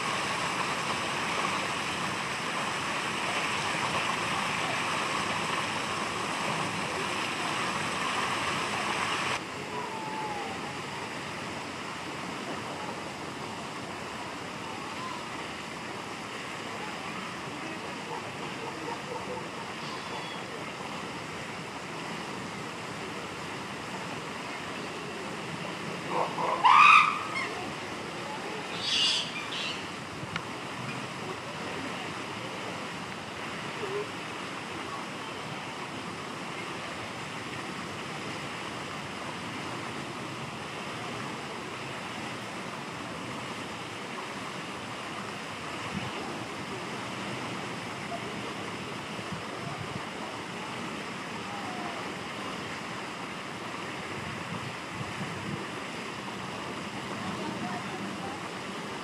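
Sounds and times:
steady background hiss: 0.0s - 59.0s
chimpanzee cries: 26.4s - 27.5s.

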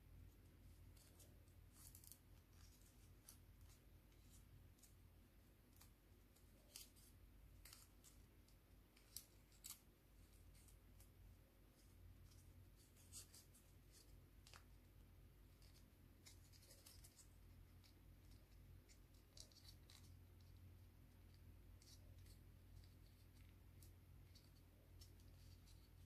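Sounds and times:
low steady hum: 0.0s - 26.0s.

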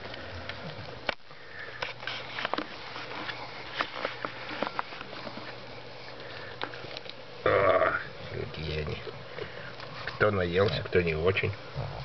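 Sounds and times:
puppies snuffling and snorting: 1.5s - 7.7s, 8.3s - 12.0s.

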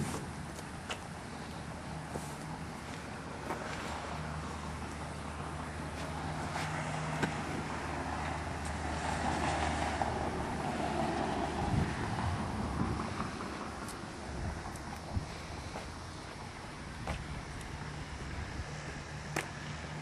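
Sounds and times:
vehicle and road noise: 0.0s - 20.0s
wind on microphone: 11.4s - 15.7s
steady low hum: 11.6s - 20.0s.

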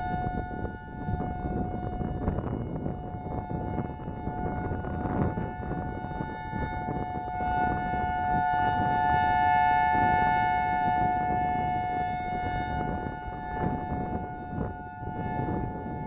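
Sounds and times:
two-tone warning siren: 0.0s - 16.0s
wind rumbling on microphone: 0.0s - 16.0s.

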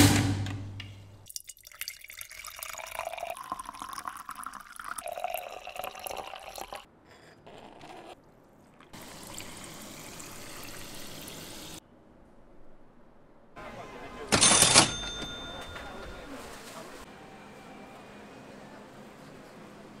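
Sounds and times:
sparkling water pouring into a glass: 1.3s - 6.9s, 8.9s - 11.8s.

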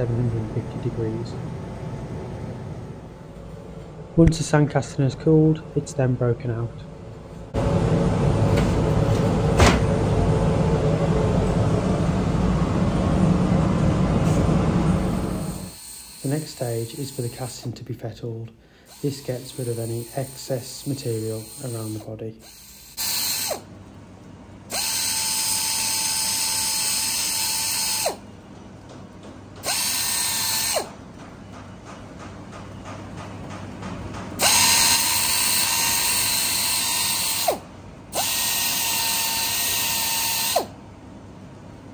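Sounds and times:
machinery rumble: 0.0s - 15.7s.

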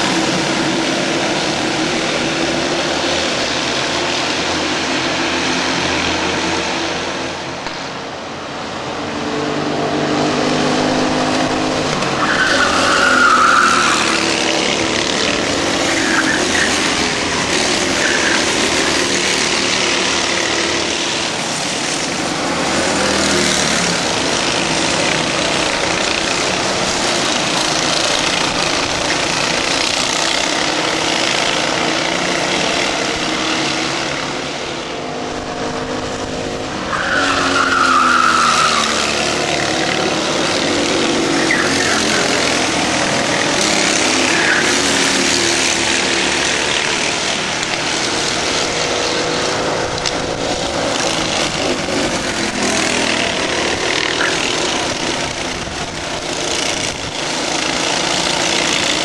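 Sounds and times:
racing kart engines: 0.0s - 59.0s
high squeal: 12.2s - 14.3s.

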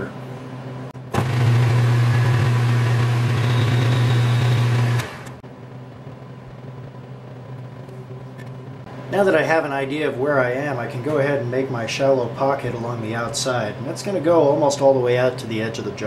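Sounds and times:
metal lathe humming: 1.1s - 5.4s.

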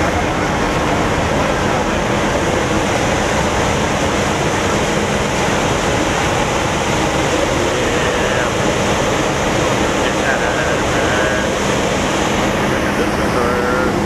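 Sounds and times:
diesel truck engines idling: 0.0s - 14.0s.

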